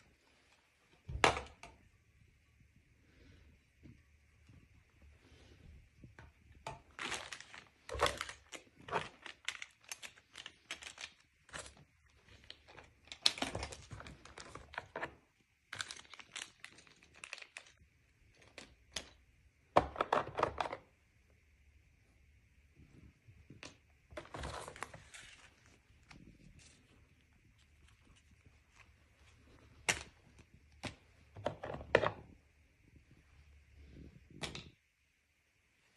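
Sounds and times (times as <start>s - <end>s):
plastic packaging crinkling: 6.7s - 19.2s.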